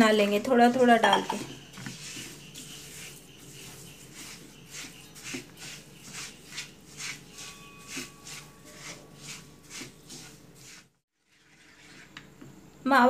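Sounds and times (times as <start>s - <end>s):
spatula scraping pan: 0.2s - 12.3s.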